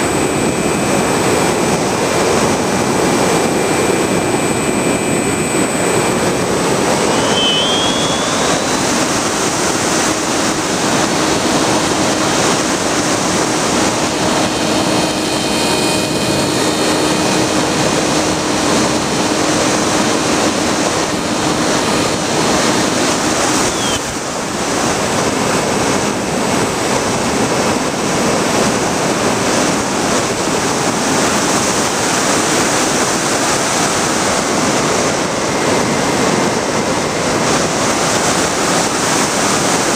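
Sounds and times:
electric motor and propeller whine: 0.0 - 39.9
wind rushing over microphone: 0.0 - 39.9.

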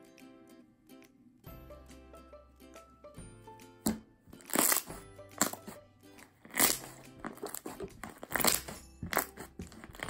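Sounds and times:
background music: 0.0 - 10.0
slime squishing and crackling: 4.4 - 5.8, 6.4 - 10.0.

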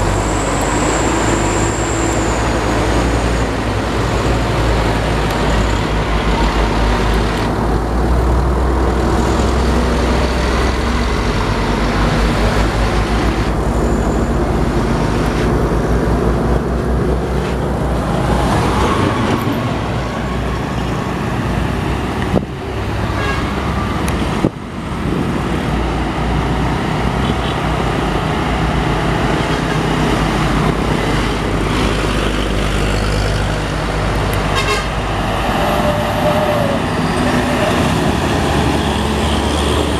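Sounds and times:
diesel trucks grinding uphill: 0.0 - 39.9
dump truck passing close: 0.0 - 39.9.

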